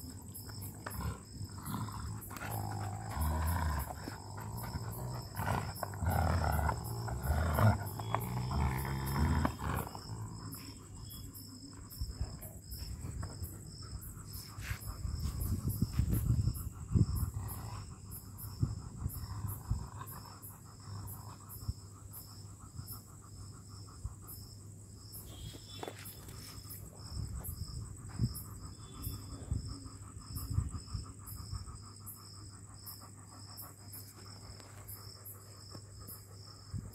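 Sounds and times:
dogs growling: 0.0 - 11.3, 12.2 - 24.2.

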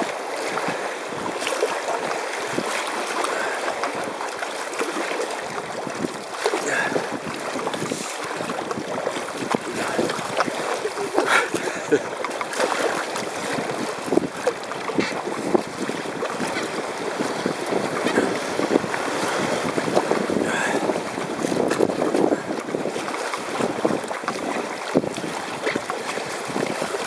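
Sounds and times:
paddle splashes and knocks: 0.0 - 27.0
river water rushing: 0.0 - 27.0
wind buffeting microphone: 5.4 - 27.0.

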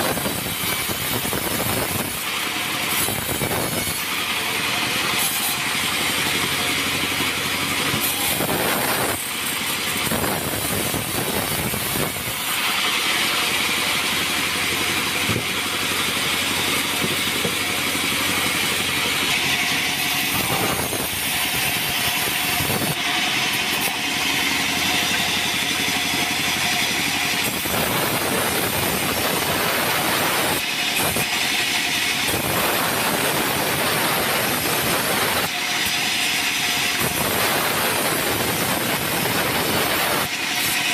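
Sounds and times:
bandsaw blade cutting wood: 0.0 - 40.9
steady machine hum: 0.0 - 40.9.

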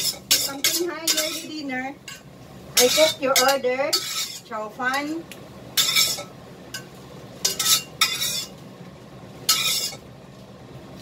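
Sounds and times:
spatula scraping a metal wok: 0.0 - 5.2, 5.8 - 8.6, 9.5 - 10.1.

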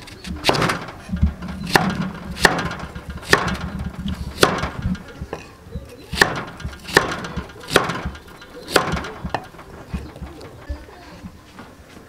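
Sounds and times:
knife chopping on wooden block: 6.1 - 8.1.

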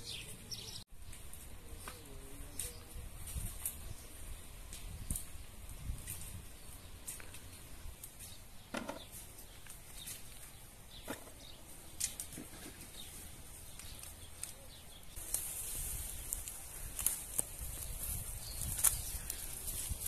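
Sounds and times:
leaves rustling: 0.0 - 20.0
twigs snapping: 11.9 - 12.5, 13.7 - 20.0.

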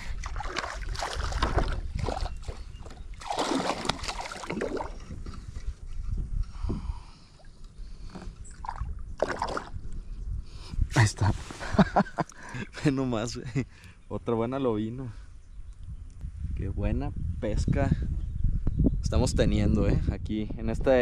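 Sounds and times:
water sloshing and splashing: 0.0 - 6.0, 7.4 - 9.9.

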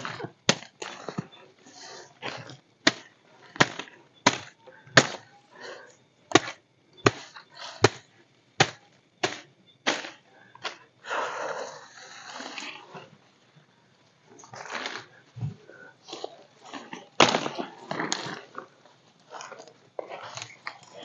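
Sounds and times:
machete chopping woody stems: 0.0 - 1.2, 2.8 - 5.3, 6.3 - 8.0, 8.6 - 10.8, 17.2 - 18.2.

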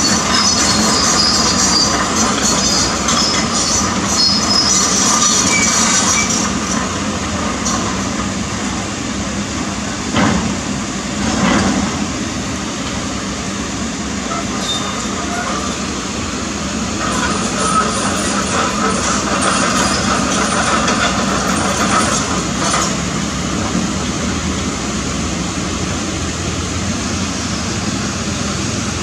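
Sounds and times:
metal tracks squealing and clanking: 0.0 - 8.4, 14.2 - 16.0, 16.9 - 24.0
diesel engine running: 0.0 - 29.0.

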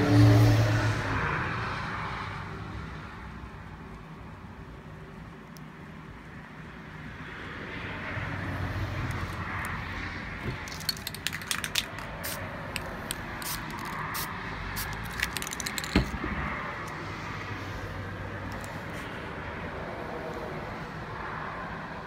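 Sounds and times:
spray can ball rattling: 10.5 - 16.2.

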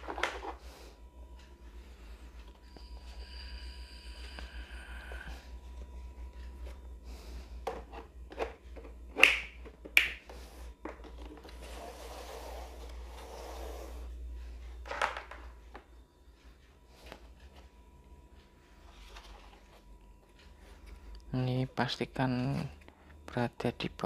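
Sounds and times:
plastic sliding and scraping: 11.0 - 14.1.

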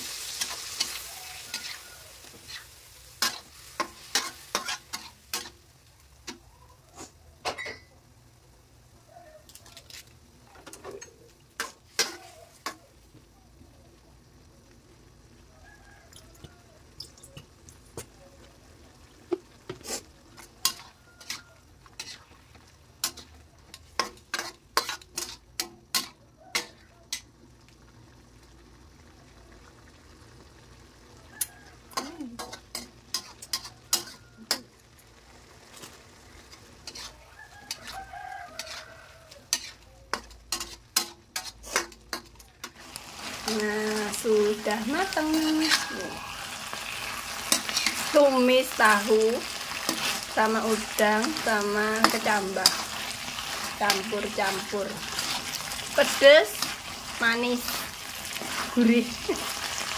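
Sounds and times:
metal spatula scraping wok: 0.0 - 5.6, 9.6 - 12.8, 19.7 - 27.3, 31.9 - 34.9, 35.6 - 59.9
food sizzling: 0.0 - 59.9
rooster crowing: 0.8 - 2.4, 9.1 - 9.6, 15.4 - 16.9, 20.4 - 21.8, 31.1 - 32.0, 37.1 - 39.5, 44.2 - 49.4.

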